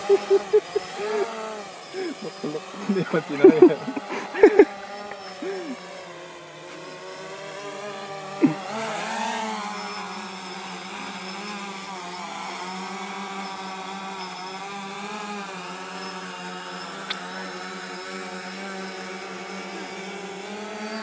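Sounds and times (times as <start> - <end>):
drone propellers whining: 0.0 - 21.0.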